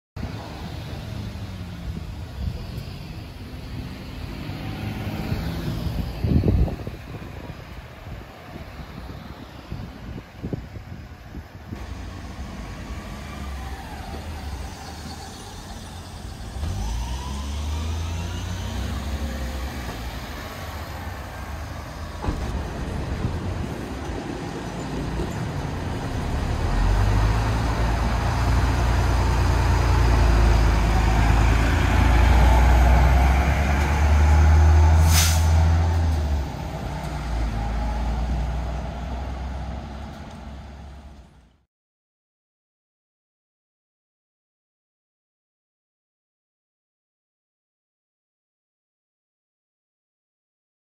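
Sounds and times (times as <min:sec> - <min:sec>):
street traffic passing: 0:00.2 - 0:41.6
bus engine drone: 0:00.2 - 0:41.7
air brakes hiss: 0:35.0 - 0:35.6.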